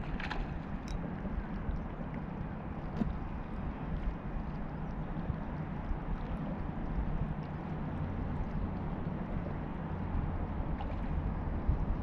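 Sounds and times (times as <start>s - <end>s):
faint light ticks: 0.0s - 1.0s
wind buffeting microphone: 0.0s - 12.0s.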